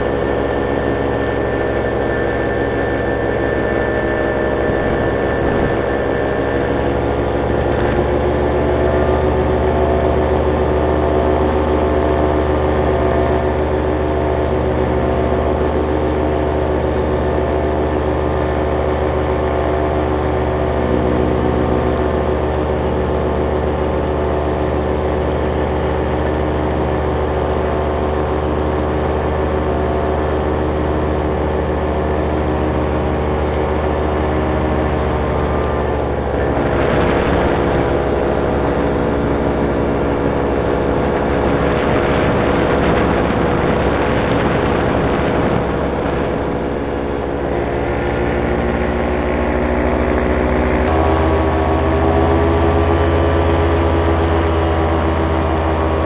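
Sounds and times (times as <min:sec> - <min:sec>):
wind rushing over microphone: 0:00.0 - 0:17.0, 0:33.5 - 0:56.0
paramotor engine droning: 0:00.0 - 0:56.0.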